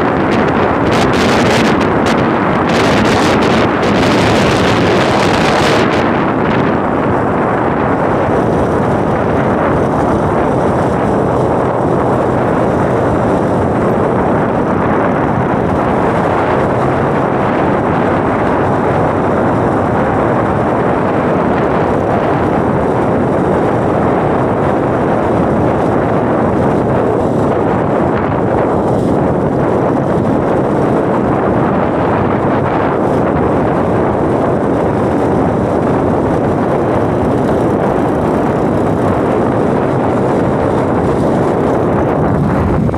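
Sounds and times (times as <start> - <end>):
motorbike engine and road noise: 0.0 - 42.9
wind on microphone: 0.0 - 42.9.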